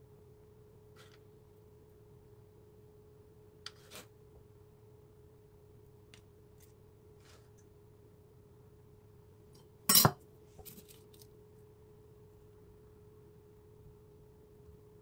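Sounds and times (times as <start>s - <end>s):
faint hum: 0.0s - 15.0s
knife clattering on wooden board: 9.9s - 10.2s.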